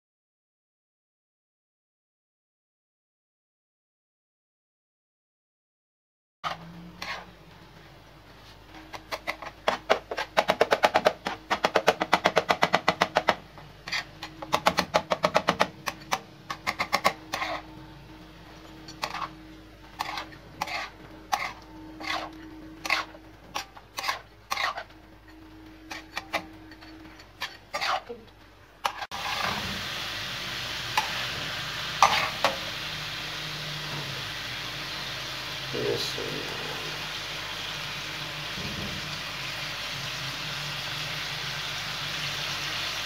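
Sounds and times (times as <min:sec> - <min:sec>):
metal spatula clanking on griddle: 0:32.0 - 0:32.6.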